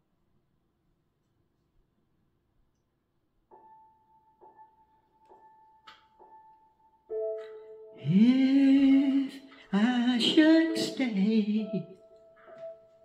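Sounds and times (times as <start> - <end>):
sustained keyboard chord: 3.5 - 13.0.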